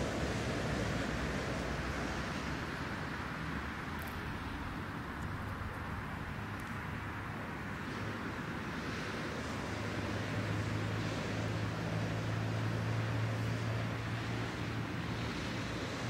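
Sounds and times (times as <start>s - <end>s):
faint high ticks: 6.5s - 6.8s.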